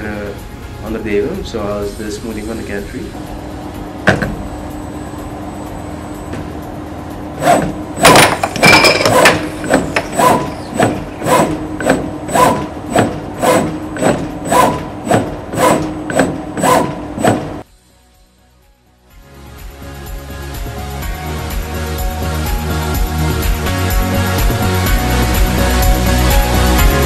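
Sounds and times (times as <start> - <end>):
blower humming: 0.0 - 17.7
loud knocks: 4.0 - 4.4
robot carriage sweeping: 7.4 - 17.6.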